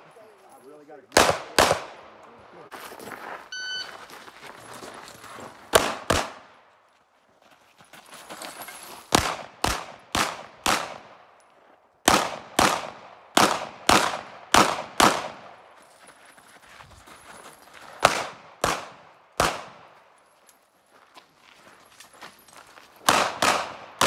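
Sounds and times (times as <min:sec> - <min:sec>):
pistol shots: 0:01.1 - 0:02.2, 0:05.7 - 0:06.5, 0:09.1 - 0:11.3, 0:12.0 - 0:15.6, 0:18.0 - 0:20.0, 0:23.1 - 0:24.0.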